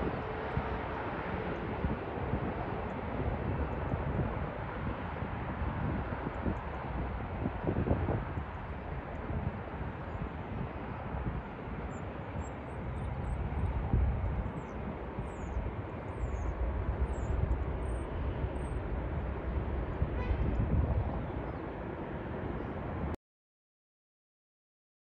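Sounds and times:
airliner engine rumble: 0.0s - 23.2s.

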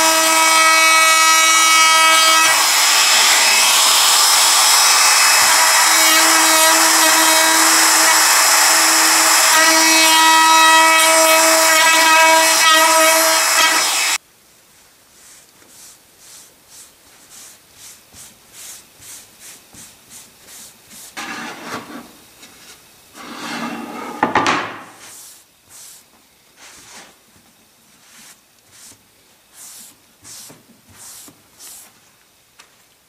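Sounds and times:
cloth rubbing on wooden board: 28.0s - 32.0s.

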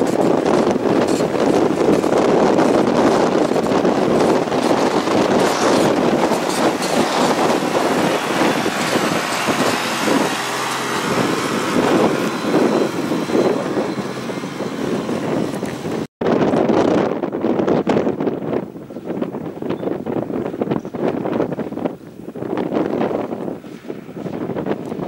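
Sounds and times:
wind noise on microphone: 0.0s - 25.0s
vehicle engine driving past: 4.2s - 16.1s.

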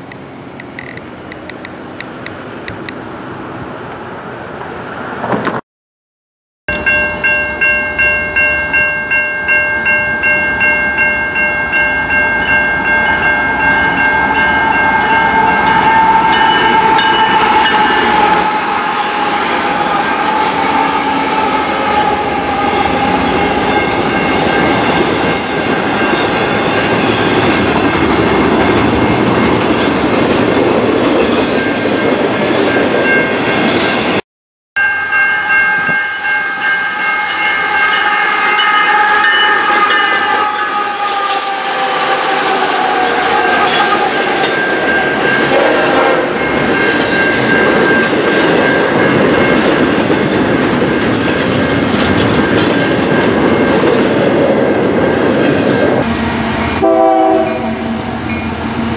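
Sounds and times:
freight train rumbling past: 0.0s - 5.6s, 6.7s - 34.2s, 34.8s - 58.9s
railroad crossing bell ringing: 6.7s - 28.0s, 31.4s - 34.2s, 34.8s - 54.2s, 56.6s - 58.6s.

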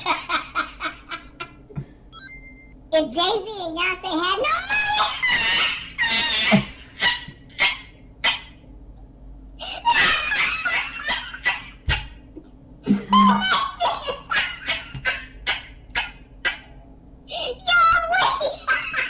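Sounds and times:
man laughing: 12.9s - 13.6s.

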